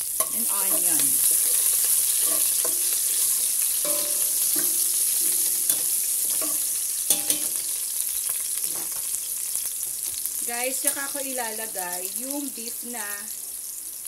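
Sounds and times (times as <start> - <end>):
garlic and onion sizzling in oil: 0.0 - 14.0
metal spoon stirring and scraping: 0.1 - 7.7
spoon clinking against pot: 2.2 - 2.8, 3.8 - 7.6.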